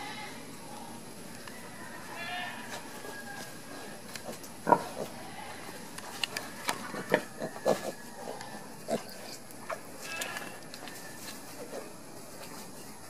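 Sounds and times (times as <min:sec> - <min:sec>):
piglets grunting: 0:03.6 - 0:05.9, 0:06.7 - 0:10.6.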